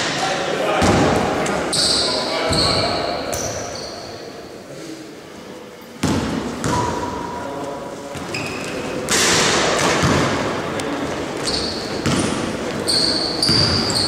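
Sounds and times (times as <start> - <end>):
basketball bouncing on gym floor: 6.0 - 7.0, 9.8 - 10.4, 11.4 - 14.0
short high squeaks: 12.9 - 14.0.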